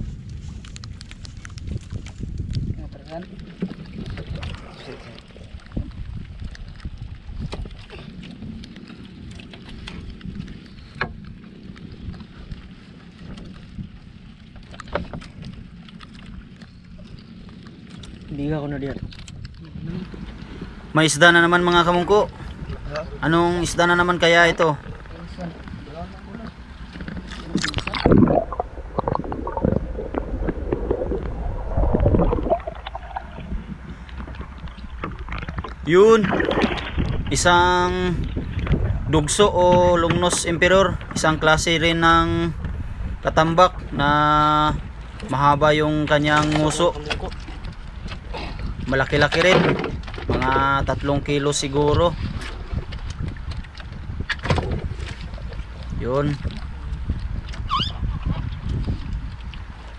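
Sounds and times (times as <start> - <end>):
water lapping against boat hull: 0.0 - 59.9
wind on microphone: 0.0 - 59.9
low rumble: 19.0 - 49.3.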